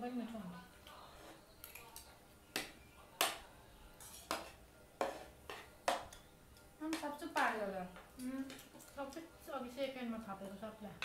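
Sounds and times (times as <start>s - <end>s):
spoons clinking against plates: 4.0s - 6.3s.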